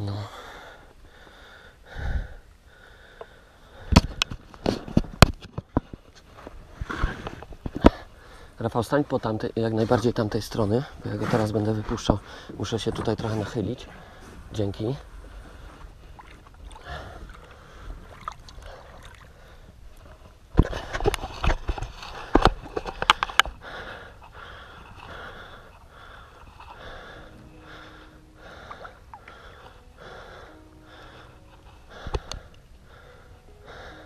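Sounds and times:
person breathing: 0:00.1 - 0:04.4, 0:06.8 - 0:08.6, 0:12.2 - 0:12.6, 0:15.1 - 0:16.1, 0:16.8 - 0:21.2, 0:22.0 - 0:34.0
water sloshing: 0:15.6 - 0:20.4
water splashing against a boat: 0:15.8 - 0:21.4.

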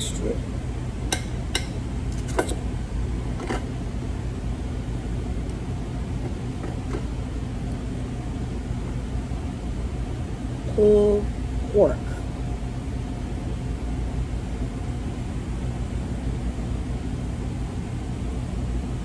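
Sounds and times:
low hum of air conditioning: 0:00.0 - 0:19.0
knife and fork clicking on plate: 0:01.1 - 0:02.6.

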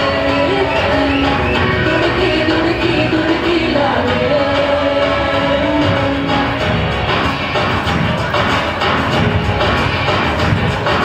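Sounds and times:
woman singing into a microphone: 0:00.0 - 0:06.8
instrumental backing music: 0:00.0 - 0:11.0.

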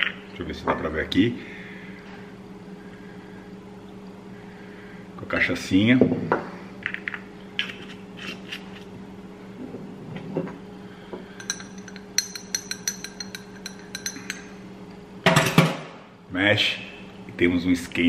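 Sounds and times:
spoon clinking in glass: 0:11.4 - 0:14.5.

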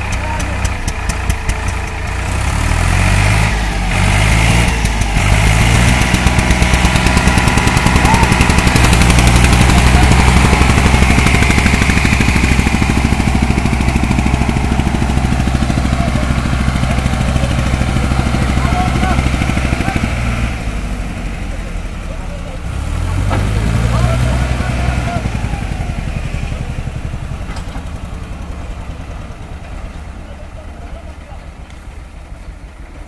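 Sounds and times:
diesel tractor engines under load: 0:00.0 - 0:33.0.

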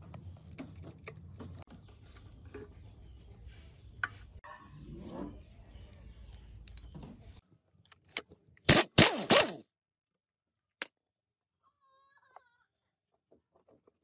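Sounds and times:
impact wrench bursts: 0:08.7 - 0:09.6.

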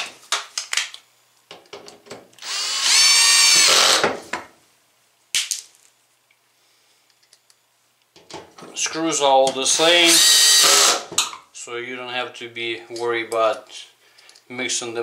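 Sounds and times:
cordless drill motor whine: 0:02.4 - 0:04.0, 0:10.1 - 0:11.0.

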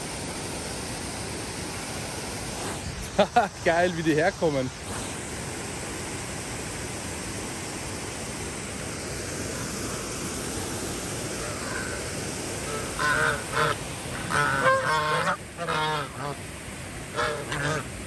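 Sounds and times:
running water hiss: 0:00.0 - 0:18.0
geese honking: 0:11.4 - 0:12.0, 0:12.6 - 0:16.4, 0:17.1 - 0:17.9.

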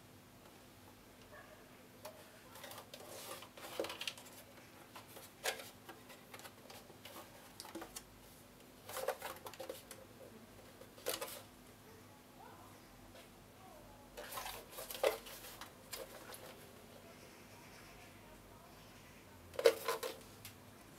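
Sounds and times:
plastic housing rubbing and rustling: 0:02.1 - 0:08.1, 0:08.8 - 0:11.5, 0:14.2 - 0:16.7, 0:19.6 - 0:20.2.

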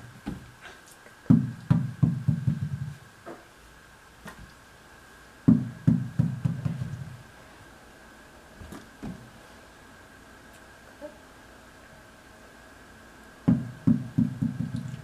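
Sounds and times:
tennis ball bouncing on wooden floor: 0:01.3 - 0:03.0, 0:05.5 - 0:07.2, 0:13.5 - 0:14.9.

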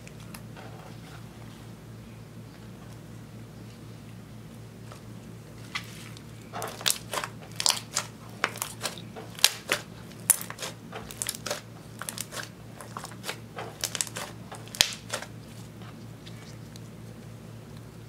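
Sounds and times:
slime squelching and popping: 0:06.6 - 0:15.3.

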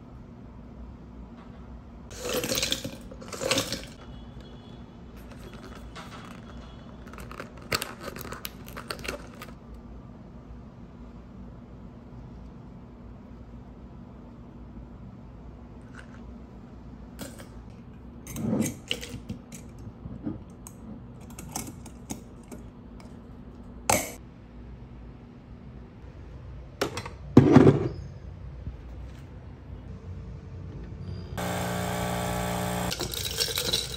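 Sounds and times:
metal coffee pods clinking: 0:02.1 - 0:04.1, 0:05.2 - 0:09.6, 0:32.9 - 0:33.9.

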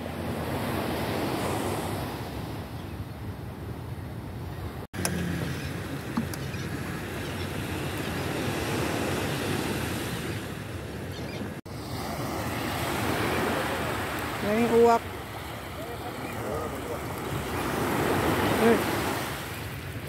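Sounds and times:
small waves breaking on sand: 0:04.9 - 0:11.0, 0:11.6 - 0:20.0.

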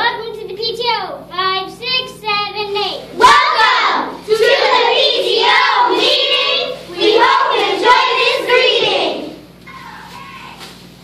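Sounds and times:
girls chanting a cheer: 0:03.1 - 0:10.6.

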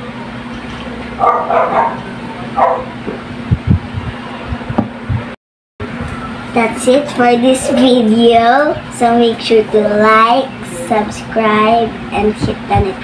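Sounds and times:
steady hum: 0:00.0 - 0:13.0
dog barking: 0:01.2 - 0:02.9
low knocks: 0:04.7 - 0:05.3.

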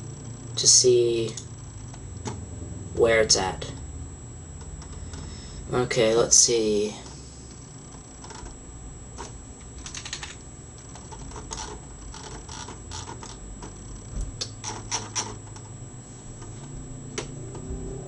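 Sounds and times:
computer keyboard clicking: 0:09.2 - 0:13.8, 0:14.4 - 0:15.7.

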